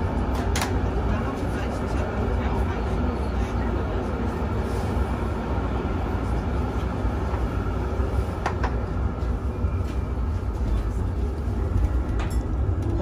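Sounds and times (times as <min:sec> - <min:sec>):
tram wheels and motors rumbling: 0:00.0 - 0:13.0.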